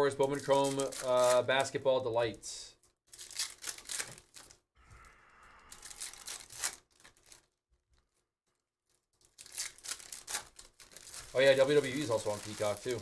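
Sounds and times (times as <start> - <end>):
foil pack tearing and crinkling: 0.2 - 1.7, 3.1 - 4.6, 5.7 - 7.6, 9.2 - 13.0.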